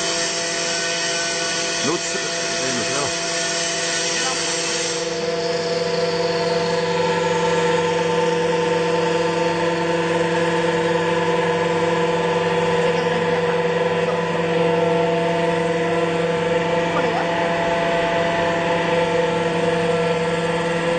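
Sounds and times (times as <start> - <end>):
machine humming: 0.0 - 20.9.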